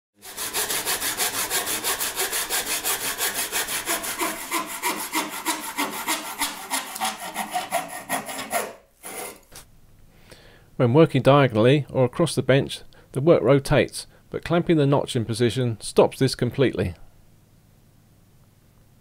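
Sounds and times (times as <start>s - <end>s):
handsaw cutting wood: 0.2s - 9.5s.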